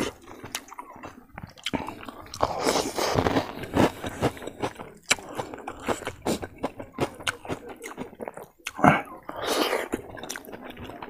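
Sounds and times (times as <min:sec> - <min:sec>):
person chewing crispy food: 0:00.0 - 0:11.0.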